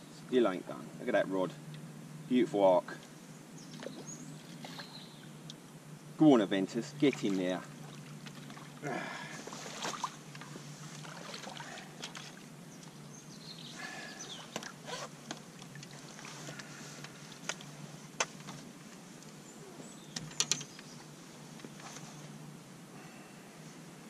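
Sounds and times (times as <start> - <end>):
fish splashing in a net: 7.8 - 10.2, 10.9 - 12.5.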